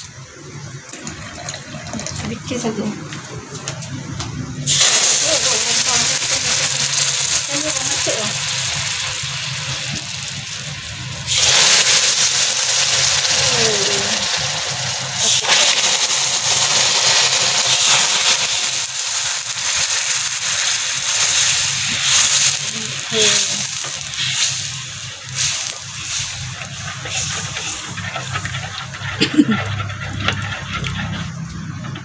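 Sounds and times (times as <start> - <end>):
water hissing in hot sugar: 4.6 - 31.4.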